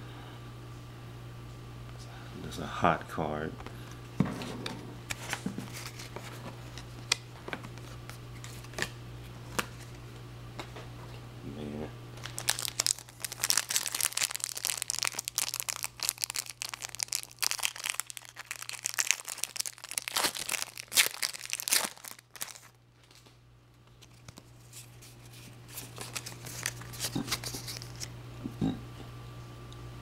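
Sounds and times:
foil wrapper crinkling: 0:05.1 - 0:08.9, 0:12.2 - 0:23.3, 0:23.9 - 0:28.1.

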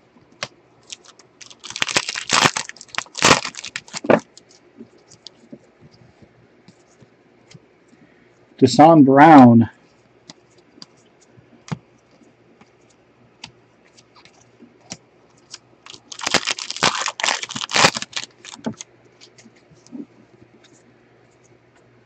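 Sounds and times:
wrapper tearing and crinkling: 0:00.8 - 0:04.4, 0:15.5 - 0:18.8.

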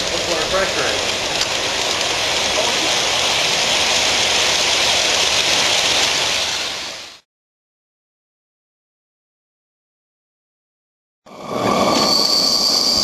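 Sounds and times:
steam locomotive hissing: 0:00.0 - 0:07.0, 0:11.3 - 0:13.0
train cars rolling past: 0:00.0 - 0:07.2, 0:11.3 - 0:13.0.

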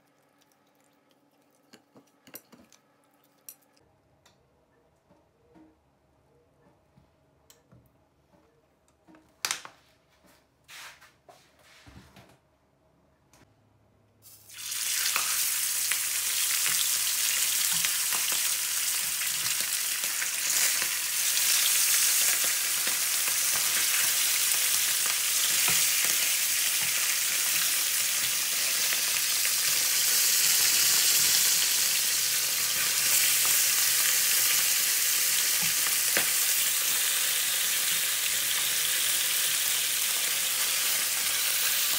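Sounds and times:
fish sizzling in hot oil: 0:14.3 - 0:41.9.

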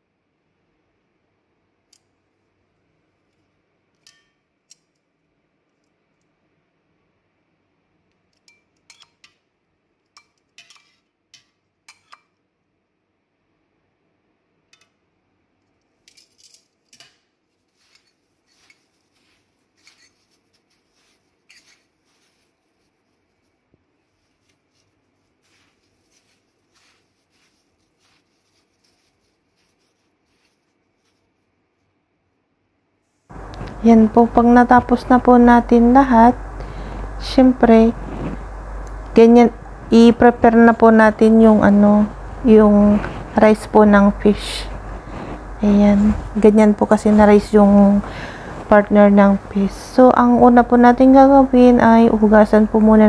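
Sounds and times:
metal tongs clicking in foil tray: 0:04.0 - 0:05.0, 0:08.3 - 0:09.4, 0:10.1 - 0:12.3, 0:15.9 - 0:18.1.

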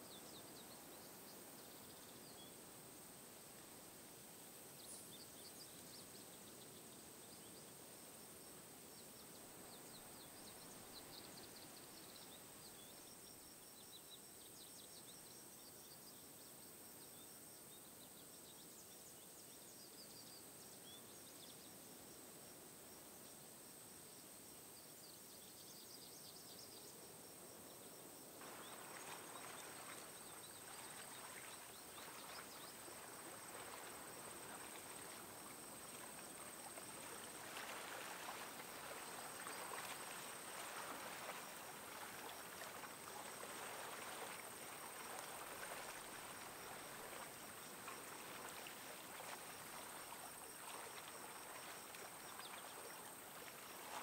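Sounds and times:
steady hiss: 0:26.9 - 0:54.0.

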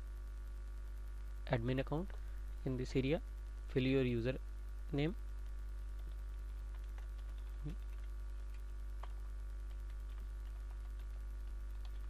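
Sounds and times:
low electrical hum: 0:00.0 - 0:12.0
keyboard typing clicks: 0:06.0 - 0:12.0.

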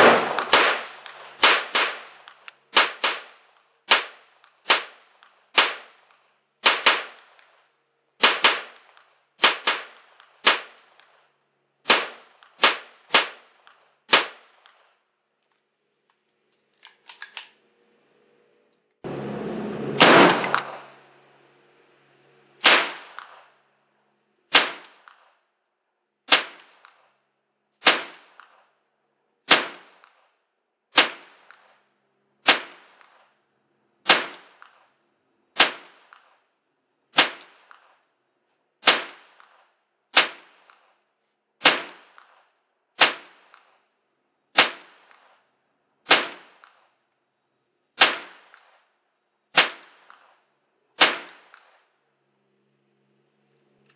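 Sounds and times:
gunshot cracks with echo: 0:00.0 - 0:03.3, 0:19.9 - 0:20.9.

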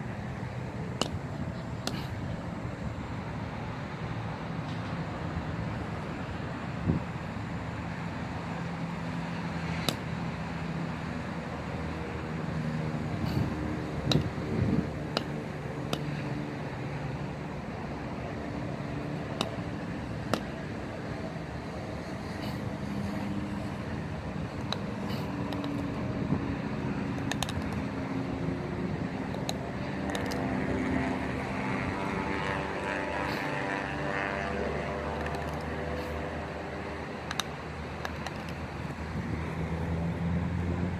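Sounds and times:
road traffic hum: 0:00.0 - 0:40.9
sharp click: 0:14.0 - 0:14.3, 0:27.2 - 0:27.8, 0:37.3 - 0:38.6.

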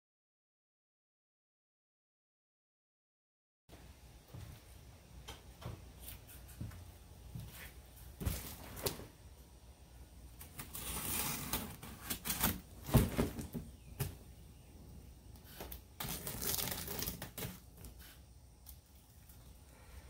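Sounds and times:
blade cutting packing tape: 0:10.4 - 0:12.7, 0:15.6 - 0:18.0.

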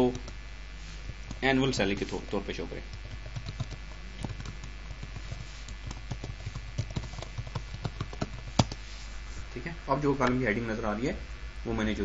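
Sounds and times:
faint steady hum: 0:00.0 - 0:12.0
keyboard typing: 0:02.9 - 0:08.8.

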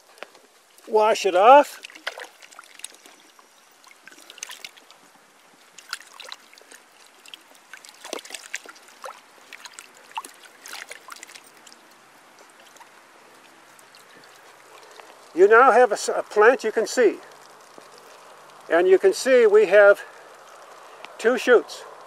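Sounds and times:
water splashing and trickling: 0:00.0 - 0:21.6.

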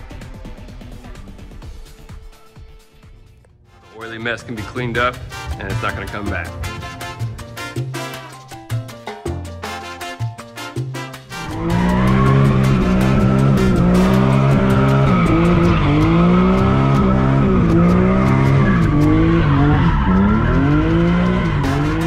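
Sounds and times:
car engine revving: 0:04.4 - 0:08.0, 0:11.3 - 0:22.0
tyres squealing: 0:11.4 - 0:22.0.

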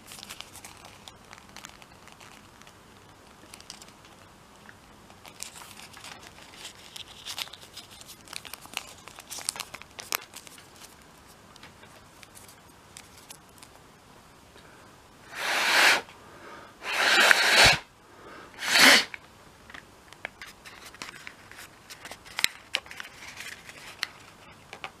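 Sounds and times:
paper crinkling: 0:00.0 - 0:04.2, 0:05.0 - 0:13.8, 0:20.3 - 0:25.0
breath puffs blown into paper: 0:15.3 - 0:16.1, 0:16.7 - 0:17.9, 0:18.5 - 0:19.2.

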